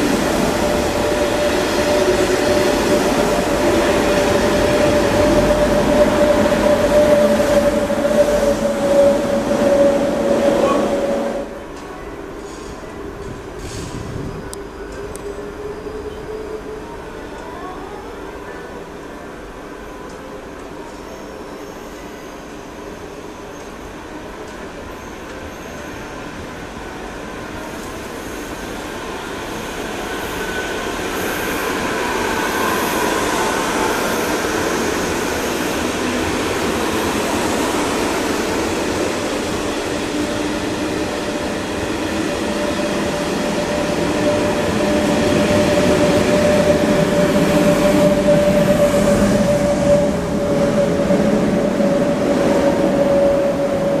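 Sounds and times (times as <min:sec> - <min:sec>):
train wheels on rails: 0:00.0 - 0:17.5, 0:20.0 - 0:54.0
electric train whine: 0:00.0 - 0:54.0.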